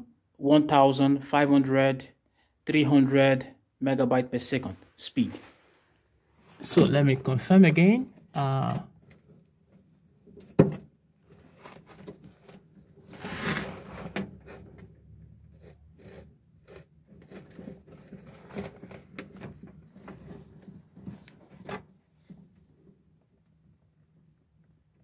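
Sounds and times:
cables rubbing and rustling: 11.2 - 23.0.

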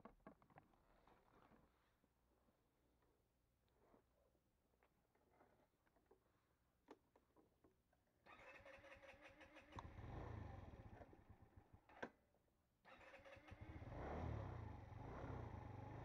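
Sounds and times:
scooter engine running: 8.3 - 11.8, 12.9 - 16.0
scooter electric starter whirring: 12.9 - 15.2.

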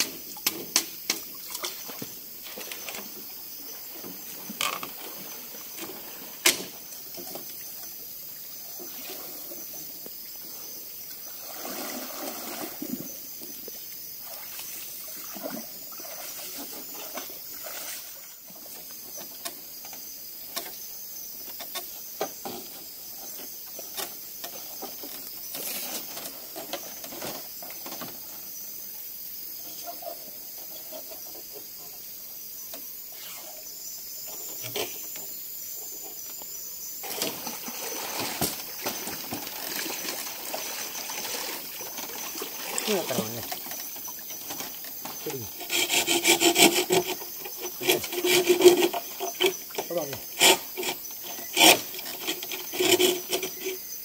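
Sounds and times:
water trickling: 37.0 - 45.6.

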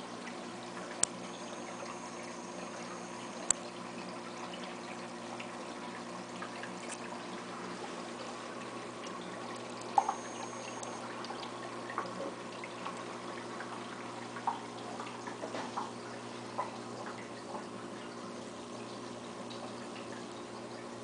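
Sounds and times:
aquarium filter humming: 0.0 - 21.0
water trickling: 0.0 - 21.0
small drips or bubble pops: 0.8 - 5.1, 8.6 - 17.8.

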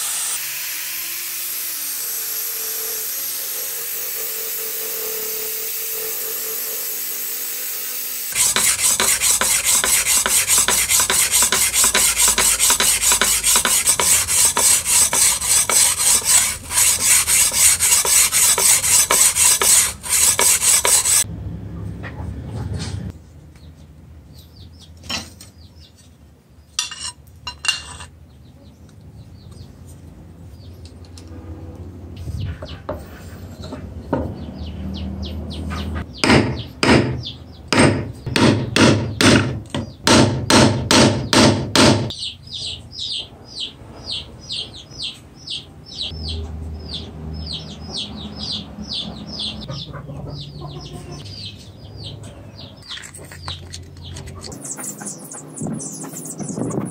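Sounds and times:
angle grinder hissing on steel: 0.0 - 21.3
steel rasping on wet stone: 8.3 - 21.2.

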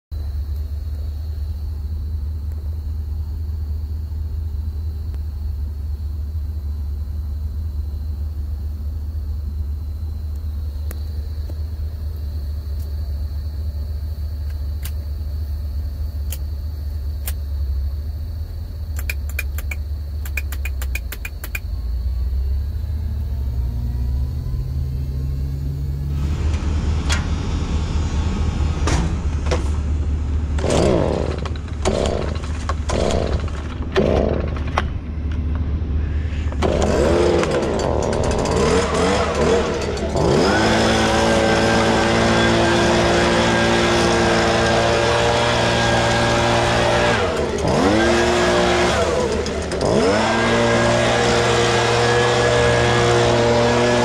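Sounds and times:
truck engine idling: 0.2 - 42.3
sharp clicks: 16.3 - 16.5, 17.2 - 17.4, 18.9 - 21.7.

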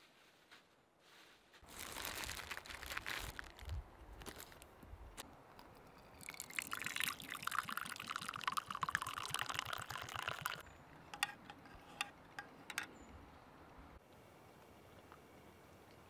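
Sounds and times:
water pouring into cup: 6.0 - 10.6.

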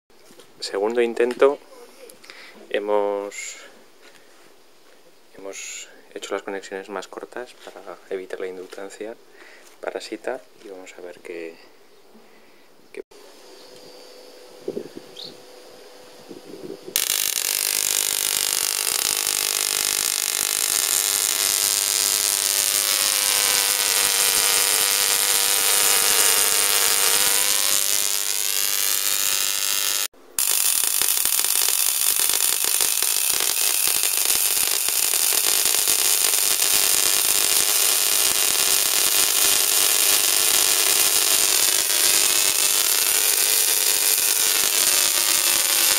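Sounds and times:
tesla coil sparks crackling: 16.9 - 45.9.

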